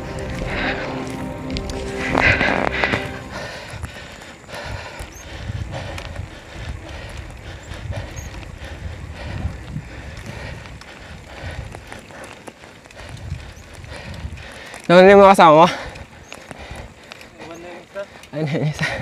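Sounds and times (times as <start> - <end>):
road noise: 0.0 - 18.3
wind rumbling on microphone: 0.0 - 19.0
faint ticks: 3.6 - 19.0.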